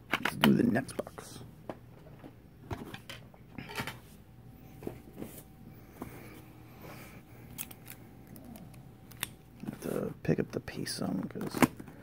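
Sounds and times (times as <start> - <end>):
clicks and knocks of handling: 0.0 - 1.0.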